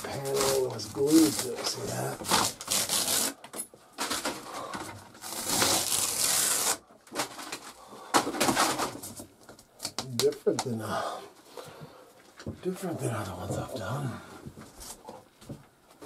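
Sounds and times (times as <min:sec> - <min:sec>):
paneling scraping and tearing: 0:00.0 - 0:03.4, 0:04.0 - 0:07.7.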